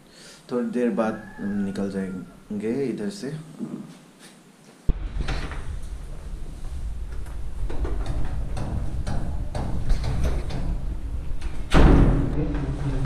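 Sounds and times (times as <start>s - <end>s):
rustling: 3.6s - 10.5s
microphone handling rumble: 4.9s - 13.0s.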